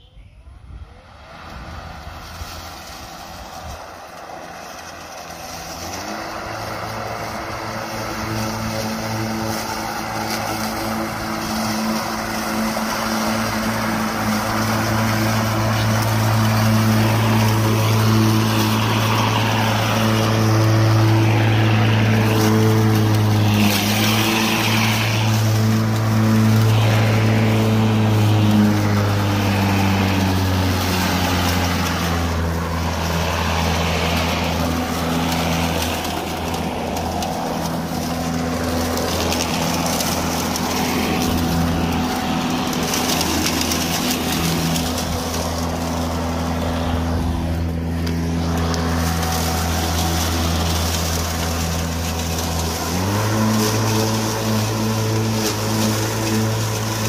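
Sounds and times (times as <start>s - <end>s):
lawn mower blade humming: 0.0s - 57.0s
grass being cut: 0.8s - 57.0s.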